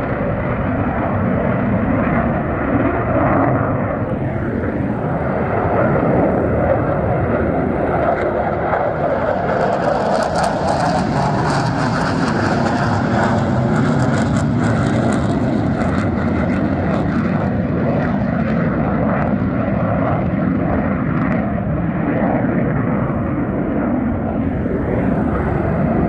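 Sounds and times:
jet engine roar at takeoff: 0:00.0 - 0:26.0.

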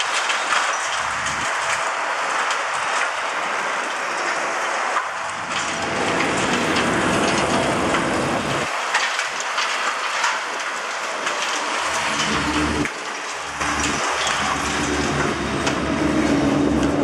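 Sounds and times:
debris falling clicks: 0:00.0 - 0:03.2, 0:03.8 - 0:17.0
low rumble of breaking material: 0:00.0 - 0:03.3, 0:05.0 - 0:17.0
hydraulic jaws crunching concrete: 0:11.3 - 0:17.0.

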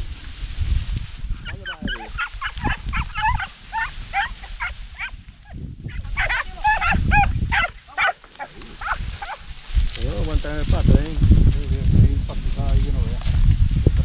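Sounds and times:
hound yelping: 0:01.4 - 0:09.5.

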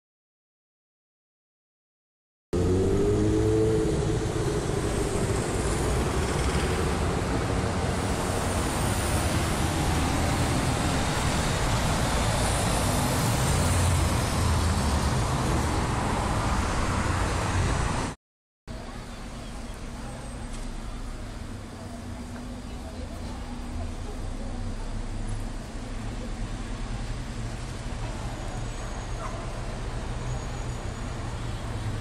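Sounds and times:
rising engine note: 0:02.6 - 0:07.0
city street traffic: 0:02.6 - 0:32.0.

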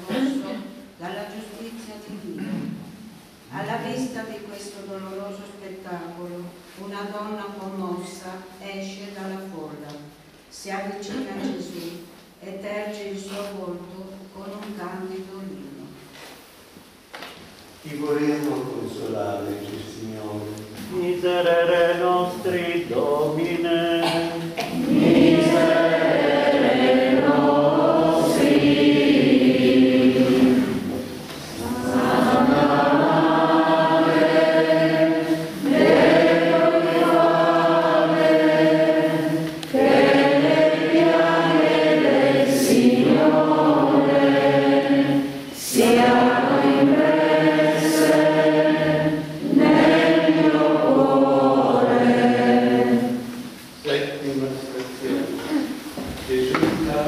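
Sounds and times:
congregation singing a hymn: 0:17.8 - 0:57.0.

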